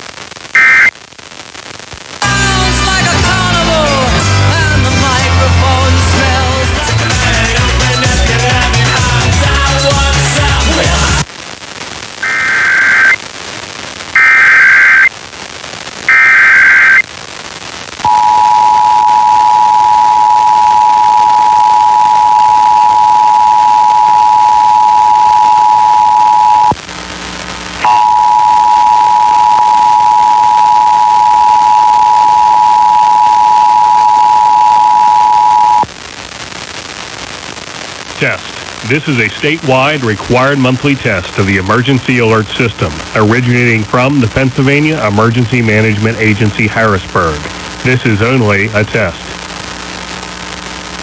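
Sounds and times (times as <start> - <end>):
radio hiss: 0.0 - 2.3, 10.3 - 51.0
data tone bursts: 0.6 - 0.9, 12.2 - 13.2, 14.2 - 15.1, 16.1 - 17.0, 18.1 - 26.8, 27.8 - 35.9.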